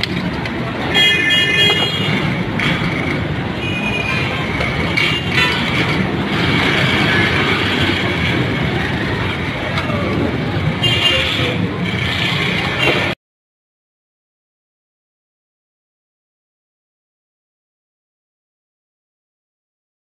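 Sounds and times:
street traffic noise: 0.0 - 13.2.

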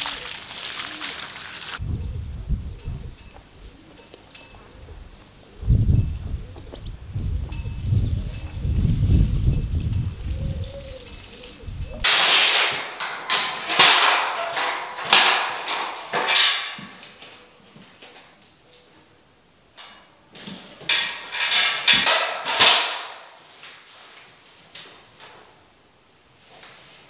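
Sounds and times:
taping knife scraping plasterboard: 12.1 - 13.2.

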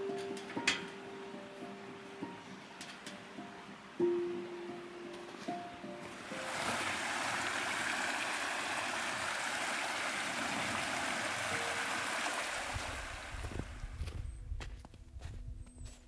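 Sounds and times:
creek water rushing: 1.1 - 13.9.

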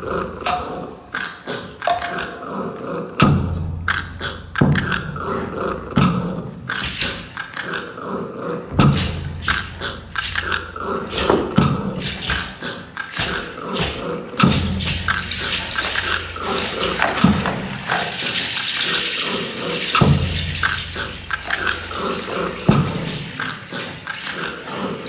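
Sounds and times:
sharp knocks: 3.2 - 7.1, 8.7 - 18.8, 19.8 - 23.6
low hum: 8.7 - 11.9, 14.4 - 18.0
rattling: 8.7 - 12.5, 14.4 - 23.8.

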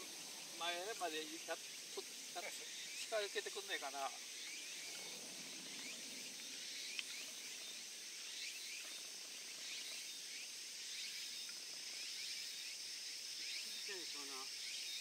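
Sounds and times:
high insect drone: 0.0 - 15.0
faint click: 5.8 - 7.2.

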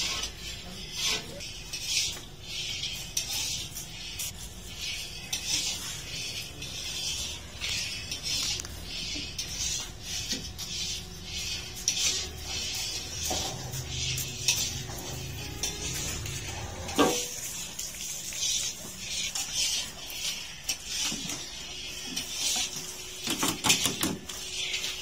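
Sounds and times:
metal dishes clattering: 13.2 - 17.5.

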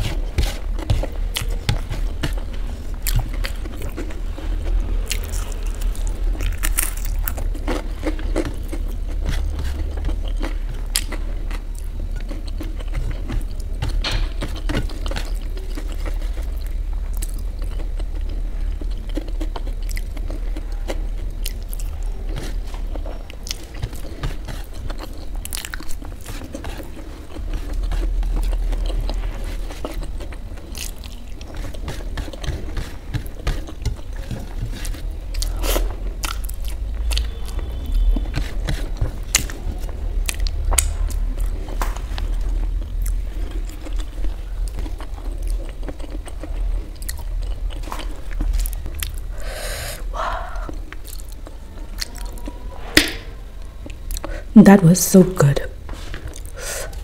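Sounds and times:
crunchy food chewing: 0.0 - 52.7.

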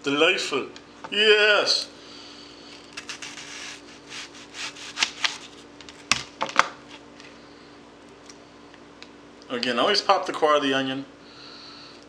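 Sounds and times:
knife slicing onion: 2.9 - 5.6.

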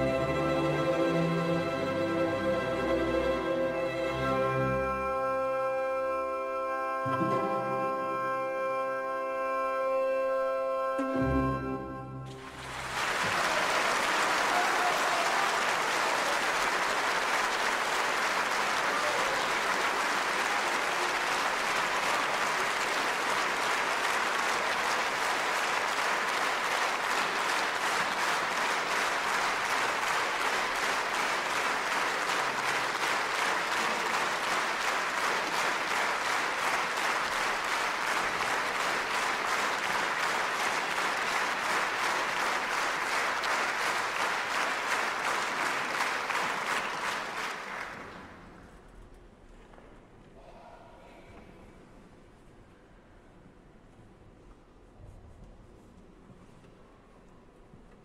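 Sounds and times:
large audience applauding: 12.3 - 48.8.

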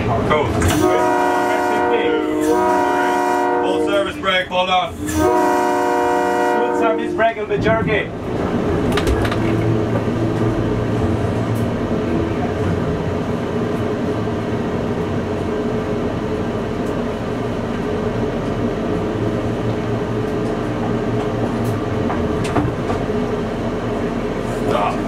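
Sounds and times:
diesel engine hum: 0.0 - 25.0
train rail running noise: 0.0 - 25.0.

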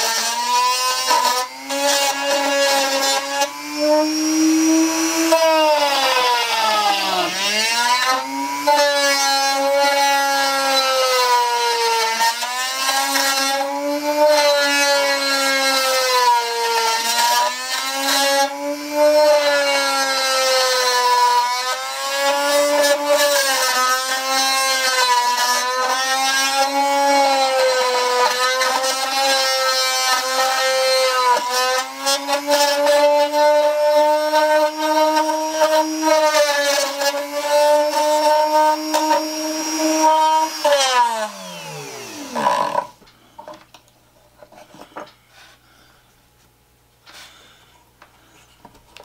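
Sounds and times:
rotary tool whining: 30.1 - 43.6.

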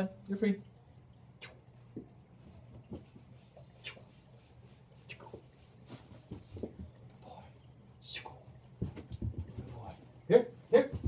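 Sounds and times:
light scuffling: 5.3 - 7.1.

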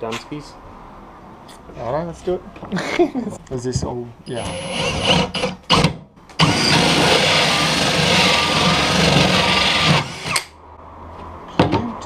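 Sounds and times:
cordless drill cutting wood: 4.3 - 10.5.

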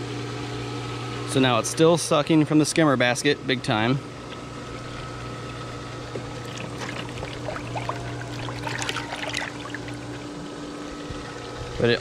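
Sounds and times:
pump motor humming: 0.0 - 12.0
water gurgling into skimmer: 4.0 - 12.0
small water splashes: 4.3 - 11.7.

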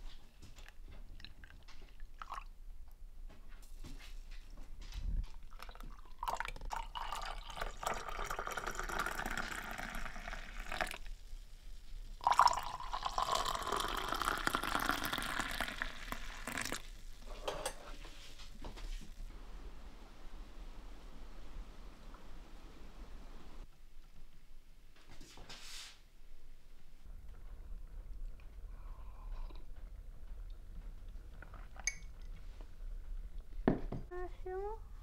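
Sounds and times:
coffee pouring into mugs: 5.3 - 18.8
light clinks of mugs: 31.8 - 32.3.

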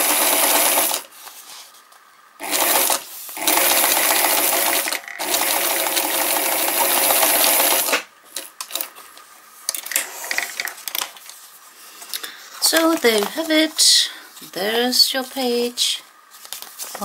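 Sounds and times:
sewing machine needle rattling: 2.4 - 8.0
paper rustling: 16.3 - 17.0.

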